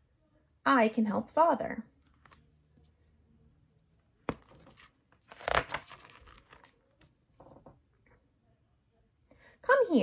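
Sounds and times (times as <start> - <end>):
book pages turning: 2.0 - 2.9, 4.2 - 7.2.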